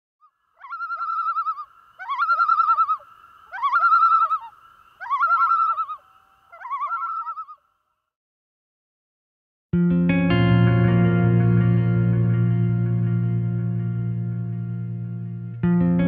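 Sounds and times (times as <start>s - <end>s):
loon tremolo call: 0.6s - 7.6s.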